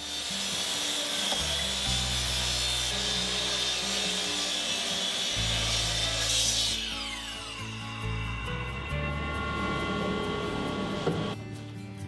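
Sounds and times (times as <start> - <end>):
miter saw cutting wood: 0.0 - 11.4
background music with bass line: 7.5 - 12.0.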